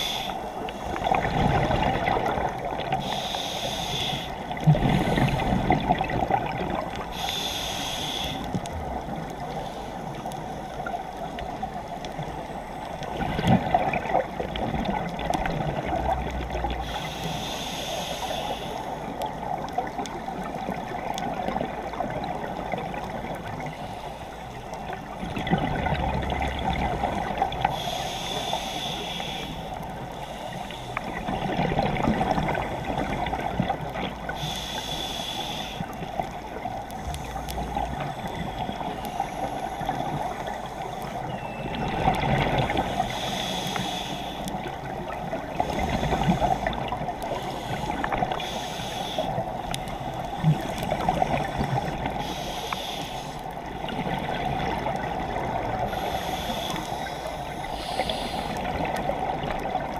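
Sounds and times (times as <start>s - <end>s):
regulator breath hiss: 0.0s - 0.9s, 3.0s - 4.4s, 7.1s - 8.5s, 16.8s - 19.1s, 27.6s - 31.2s, 34.3s - 36.0s, 42.8s - 44.6s, 45.8s - 49.4s, 52.0s - 53.4s, 55.9s - 58.7s
watery wash: 0.0s - 59.9s
exhaust bubbles gurgling: 0.9s - 3.0s, 13.1s - 16.8s, 25.2s - 27.6s, 41.3s - 43.0s, 53.6s - 56.0s.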